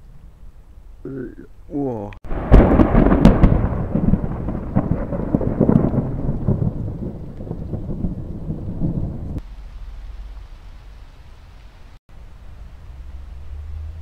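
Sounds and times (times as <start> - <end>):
thunder clap and rumble: 2.2 - 11.0.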